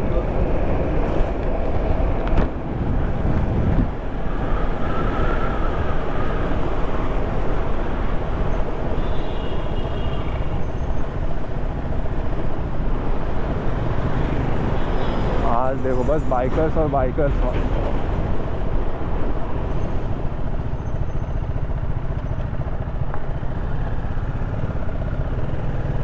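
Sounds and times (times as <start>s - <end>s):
wind rushing over microphone: 0.0s - 8.8s.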